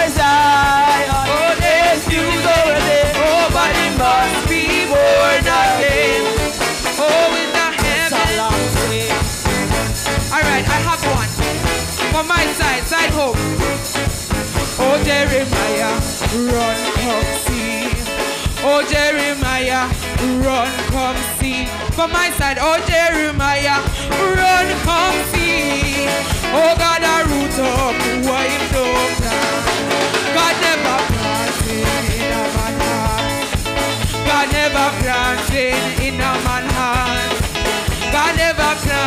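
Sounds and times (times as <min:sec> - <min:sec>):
congregation singing: 0:00.0 - 0:08.7
band with drum beat: 0:00.0 - 0:39.0.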